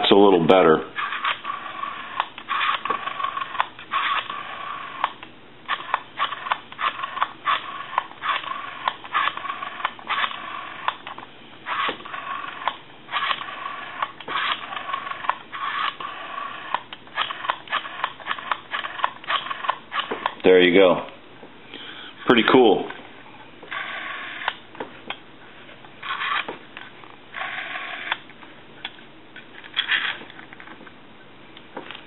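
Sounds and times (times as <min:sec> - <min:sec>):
telephone rotary dial clicking and whirring: 0:01.0 - 0:20.4, 0:23.7 - 0:24.6, 0:26.0 - 0:26.5, 0:27.3 - 0:28.2, 0:29.6 - 0:30.7.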